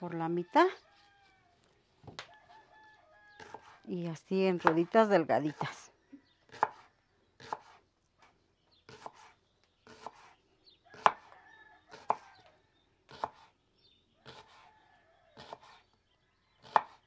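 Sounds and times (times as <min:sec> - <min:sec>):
knife slicing onion: 0:03.4 - 0:03.9, 0:04.6 - 0:04.9, 0:06.5 - 0:07.8, 0:08.9 - 0:10.3, 0:13.1 - 0:13.5, 0:15.4 - 0:15.8.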